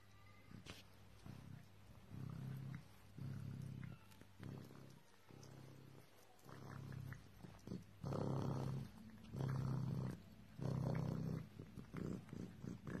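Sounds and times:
raccoon purring: 0:01.2 - 0:13.0.

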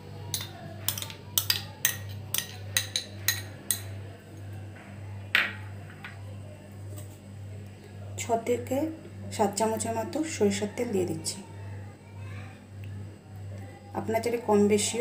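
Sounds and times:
spoon clinking on glass bowl: 0:00.3 - 0:03.9.

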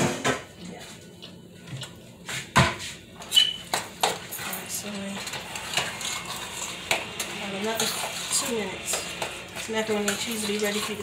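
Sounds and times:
spoon stirring and knocking in pot: 0:03.2 - 0:11.0.

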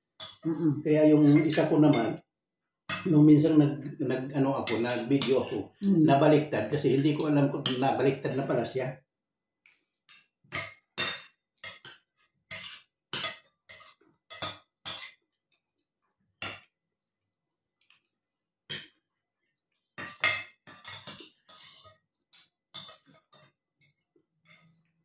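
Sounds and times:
metal cutlery clinking on plate: 0:04.6 - 0:05.6, 0:10.5 - 0:15.2, 0:20.0 - 0:24.8.

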